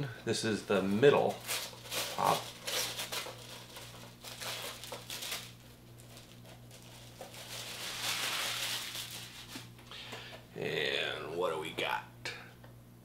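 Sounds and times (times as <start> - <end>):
packaging crinkling and rustling: 0.8 - 9.8.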